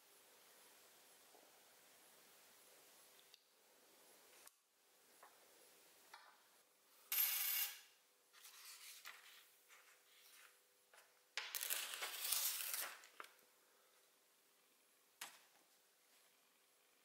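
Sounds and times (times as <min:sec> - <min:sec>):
drawing paper rustling: 0:08.3 - 0:13.4.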